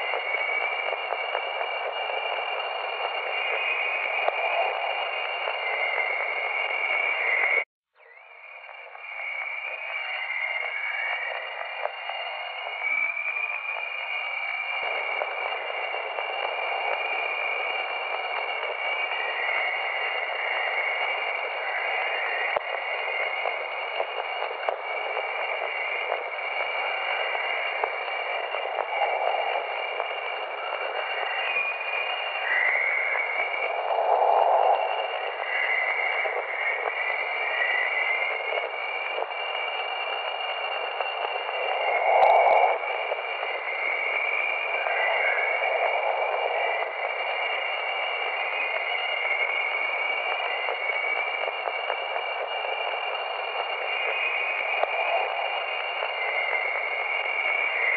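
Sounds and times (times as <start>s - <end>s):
static hiss: 0.0s - 7.6s, 8.4s - 57.9s
faint rising whistling tone: 0.0s - 57.9s
click: 4.2s - 4.4s, 11.8s - 12.0s, 24.0s - 25.2s, 54.8s - 55.3s
steady tones: 26.9s - 48.1s.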